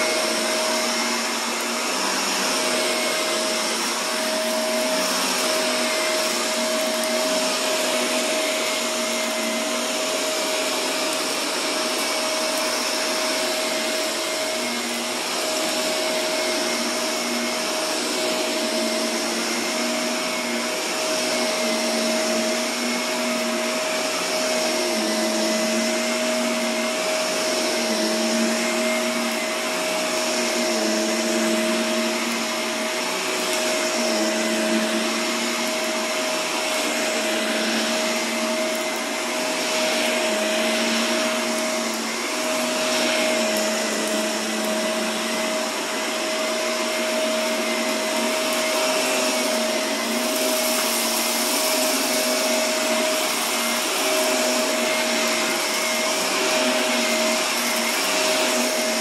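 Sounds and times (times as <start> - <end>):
vacuum cleaner running on carpet: 0.0 - 59.0.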